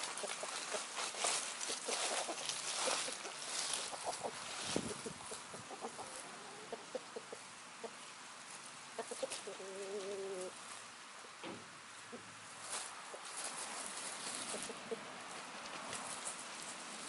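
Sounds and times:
scratching in dry leaves: 0.0s - 6.6s, 8.4s - 11.0s, 12.5s - 17.0s
hens clucking: 0.0s - 10.6s, 13.0s - 16.2s.

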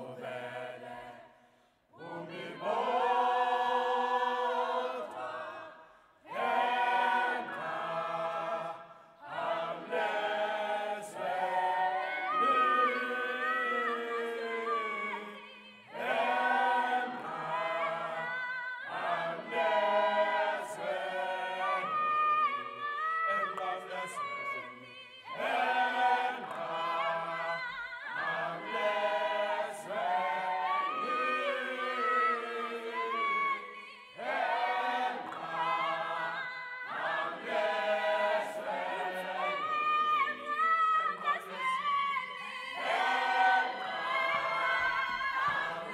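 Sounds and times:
youth choir singing a cappella: 0.0s - 45.9s.

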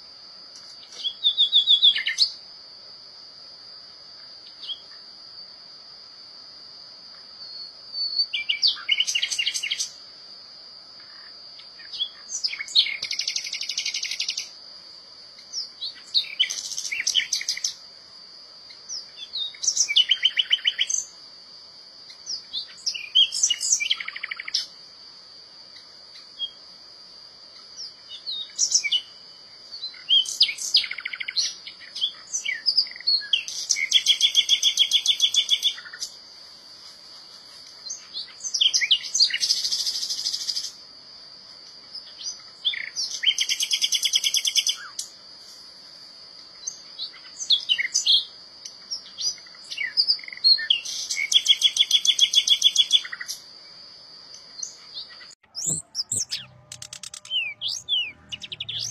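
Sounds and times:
nightingale singing: 0.8s - 2.4s, 4.5s - 5.0s, 7.4s - 10.0s, 11.0s - 14.6s, 15.4s - 17.8s, 18.7s - 21.2s, 22.1s - 24.7s, 27.5s - 36.2s, 37.8s - 40.8s, 42.0s - 45.1s, 46.6s - 53.5s, 54.3s - 58.9s.

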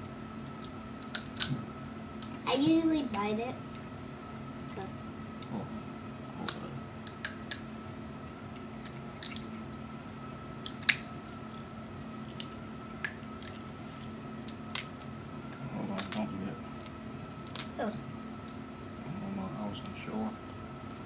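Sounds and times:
steady background hum: 0.0s - 21.0s
crab shells cracking: 0.4s - 2.4s, 6.5s - 7.7s, 8.8s - 17.8s.

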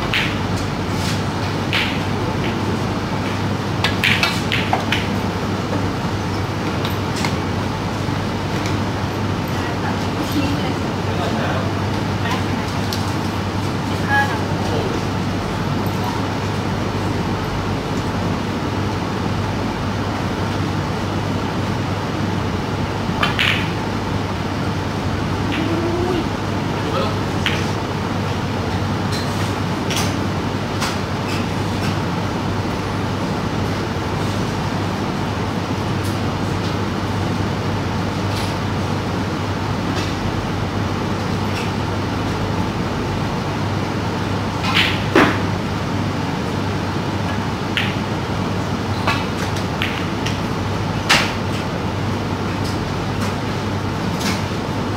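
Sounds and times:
snooker balls clacking: 0.0s - 0.4s
background hum: 0.0s - 54.9s.

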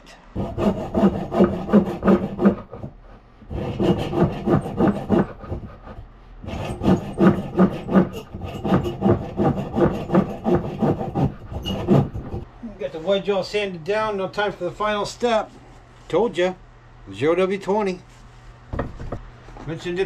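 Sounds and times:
hand saw cutting wood: 0.4s - 12.5s.

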